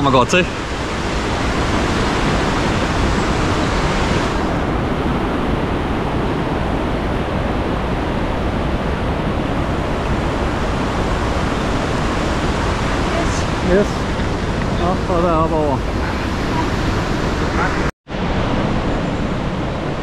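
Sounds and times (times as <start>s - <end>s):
river water rushing: 0.0s - 20.0s.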